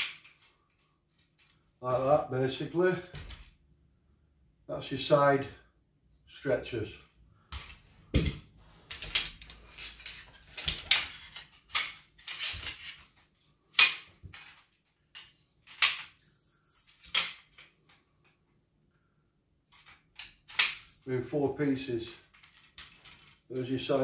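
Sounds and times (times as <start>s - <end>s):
metal pole sections clinking: 7.5s - 18.4s.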